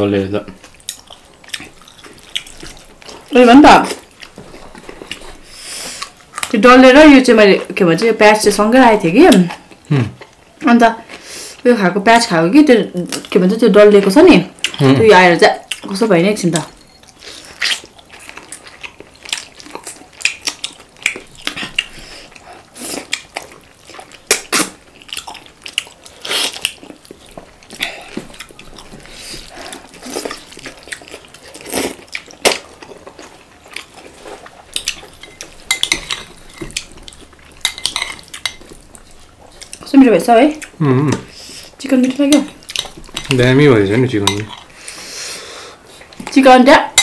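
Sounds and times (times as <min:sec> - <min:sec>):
cutlery clinking on plate: 0:35.1 - 0:36.8.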